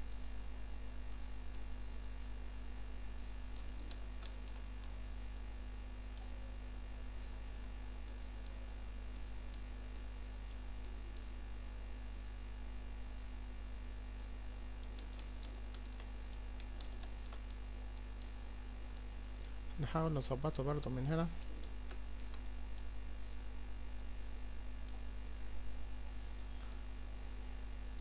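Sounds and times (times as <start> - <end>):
electrical mains hum: 0.0 - 28.0
faint clicks: 3.5 - 5.1, 14.2 - 18.5.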